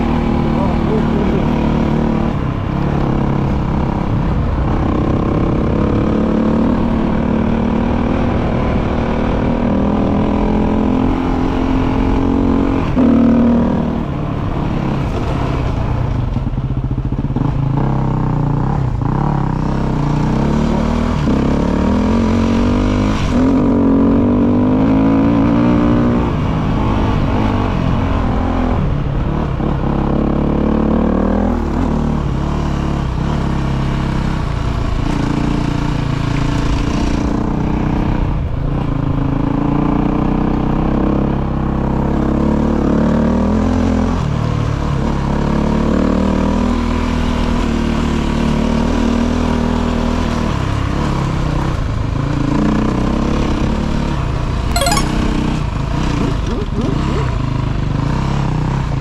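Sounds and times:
motorcycle engine accelerating: 0.0s - 38.2s.

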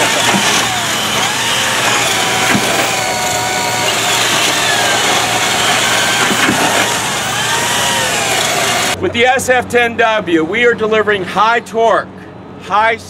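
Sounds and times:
drills boring through wood: 0.0s - 9.0s.

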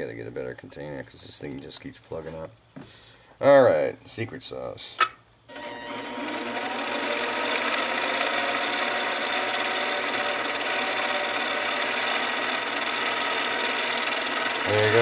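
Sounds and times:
lathe motor running: 5.5s - 15.0s.

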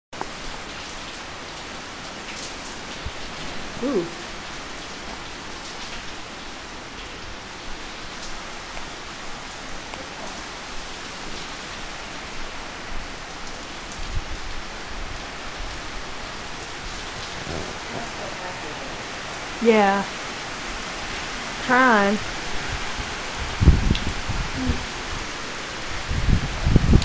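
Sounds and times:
heavy rain on pavement: 0.2s - 27.0s
low bumps: 16.5s - 18.6s.

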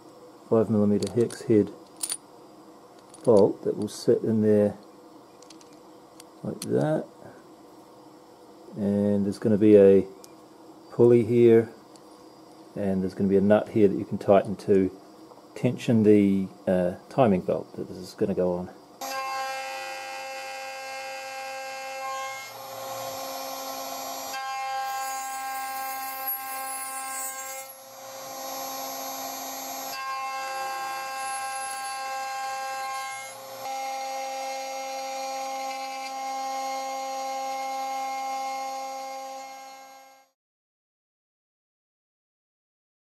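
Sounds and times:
cnc router spindle whine: 19.0s - 40.3s.

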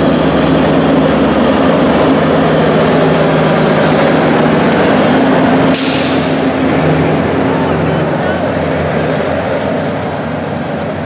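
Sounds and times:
diesel locomotive engine drone: 0.0s - 11.0s
loud hiss: 5.7s - 6.6s.

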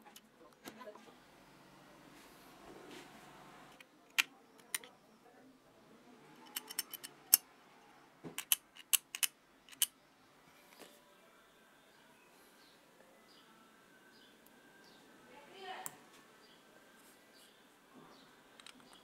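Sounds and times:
metallic clicks of tweezers: 6.4s - 7.4s, 8.4s - 9.9s.

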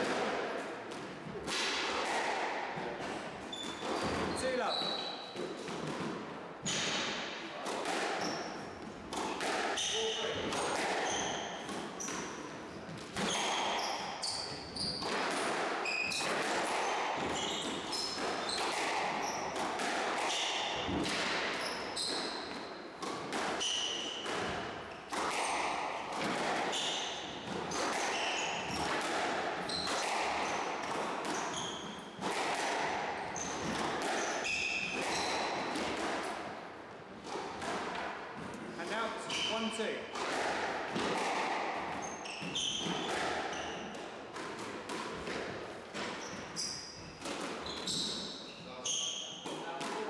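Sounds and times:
squash ball knocks: 0.0s - 4.4s, 5.4s - 12.3s, 14.9s - 36.6s, 39.8s - 46.2s
shoes squeaking on wooden floor: 3.4s - 5.5s, 15.8s - 19.6s, 21.6s - 22.6s, 29.6s - 32.2s, 33.3s - 35.6s, 41.9s - 43.9s, 46.0s - 49.4s.

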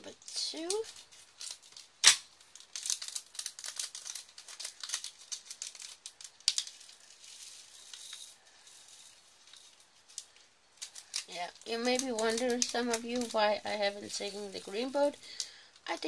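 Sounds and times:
plastic bag crinkling: 0.1s - 16.0s
resin beads rattling into tray: 2.7s - 9.8s.

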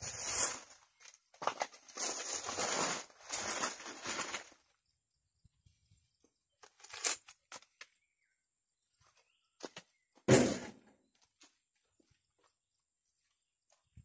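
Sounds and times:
footsteps on dry leaves: 0.0s - 4.6s.

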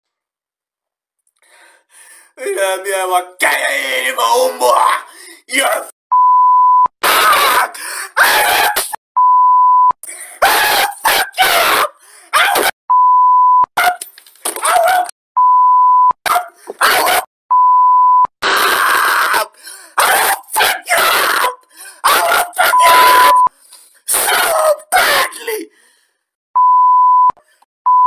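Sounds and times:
man shouting loudly: 2.4s - 5.9s, 20.0s - 23.4s, 24.1s - 25.7s
censor bleeps: 6.1s - 6.9s, 9.2s - 10.0s, 12.9s - 13.7s, 15.4s - 16.2s, 17.5s - 18.3s, 22.8s - 23.5s, 26.6s - 28.0s.

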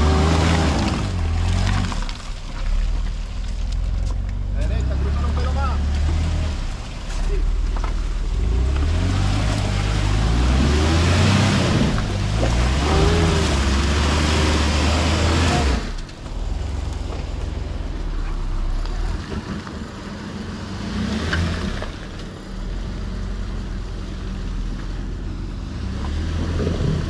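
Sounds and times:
engine revving hard: 0.0s - 2.0s, 8.3s - 16.0s
tires spinning in mud: 0.0s - 27.0s.

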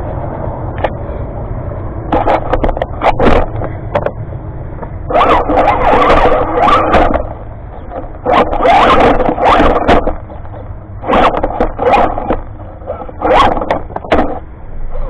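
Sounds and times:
wheels scraping on stones: 2.1s - 3.8s, 5.1s - 15.0s.

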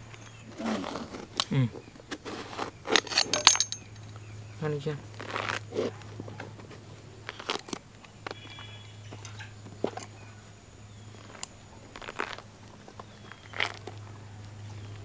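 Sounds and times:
steady low hum: 0.0s - 15.0s
fruit peel tearing and snapping: 7.2s - 8.1s.

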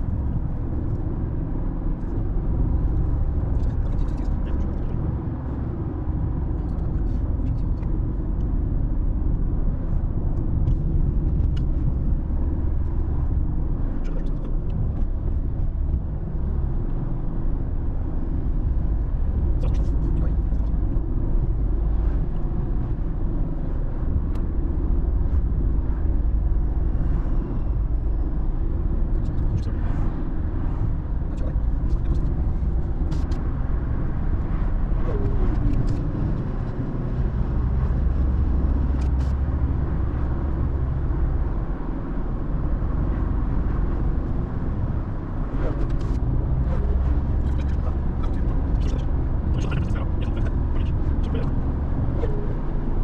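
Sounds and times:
road and engine rumble: 0.0s - 53.0s.

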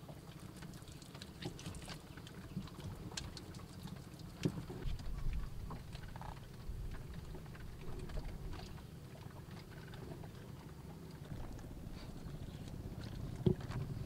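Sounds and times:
hands working wet mud: 0.0s - 14.0s
low rumble: 11.3s - 14.0s.

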